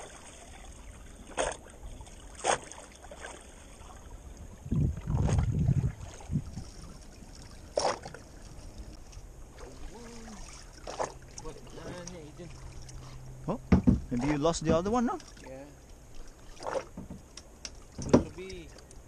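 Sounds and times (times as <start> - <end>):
waves slapping against boat hull: 0.0 - 4.0, 4.8 - 13.1, 13.7 - 19.0
low water wash: 0.0 - 19.0
low buffeting rumble: 4.0 - 16.4.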